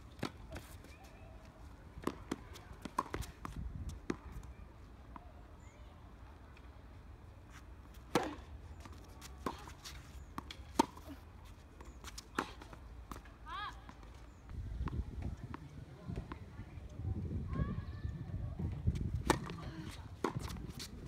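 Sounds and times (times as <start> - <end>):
tennis ball bouncing: 2.0 - 4.4, 8.0 - 11.1, 19.2 - 20.9
racket striking tennis ball: 8.1 - 8.5, 10.4 - 11.1, 19.2 - 19.6.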